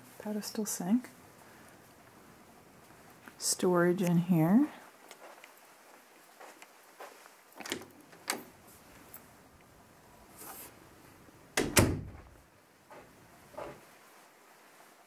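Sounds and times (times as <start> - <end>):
door knob and latch clicks: 7.6 - 8.5
door thumping shut: 11.6 - 12.4.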